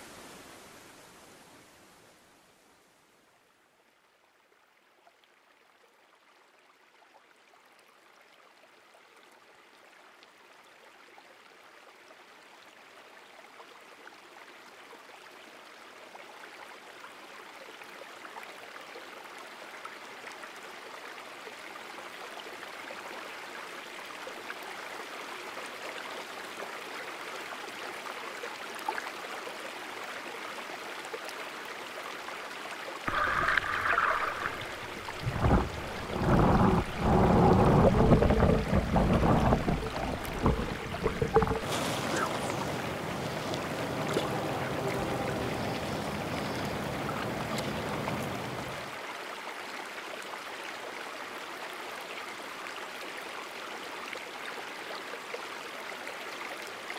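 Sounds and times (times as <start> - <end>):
creek water rushing: 15.4 - 56.9.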